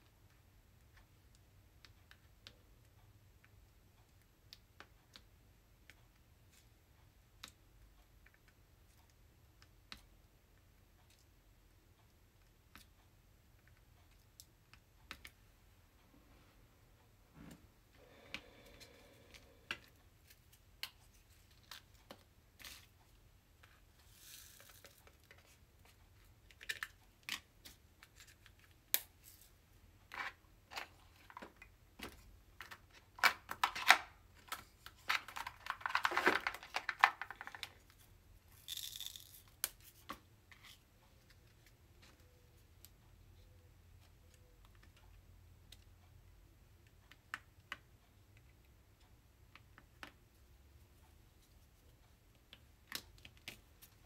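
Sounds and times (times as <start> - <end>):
rattling and crinkling of bottles: 30.1 - 39.4.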